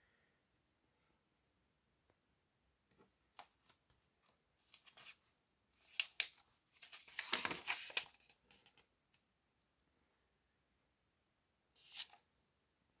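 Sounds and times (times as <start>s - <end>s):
magazine pages rustling: 3.4s - 8.8s, 11.8s - 12.2s.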